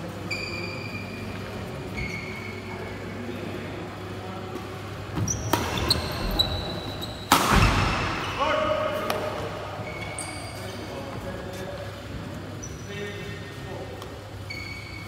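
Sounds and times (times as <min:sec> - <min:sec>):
sports shoes squeaking on court: 0:00.3 - 0:02.8, 0:05.2 - 0:08.4, 0:09.8 - 0:11.1, 0:12.6 - 0:13.0, 0:14.4 - 0:15.0
racket striking shuttlecock: 0:07.3 - 0:07.8.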